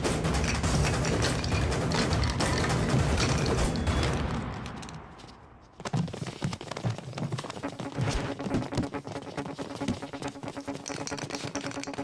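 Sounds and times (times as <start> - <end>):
soundtrack music: 0.0 - 5.4, 7.4 - 12.0.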